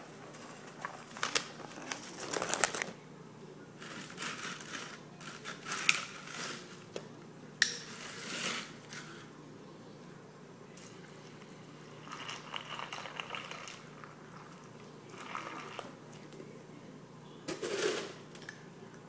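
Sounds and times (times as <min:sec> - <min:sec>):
plastic bag crinkling: 0:00.4 - 0:02.9.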